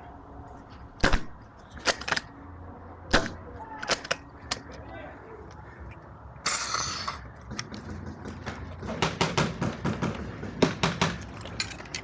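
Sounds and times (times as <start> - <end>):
paintball gun firing: 1.0 - 2.2, 3.1 - 4.6
paintballs striking wall: 7.7 - 11.4.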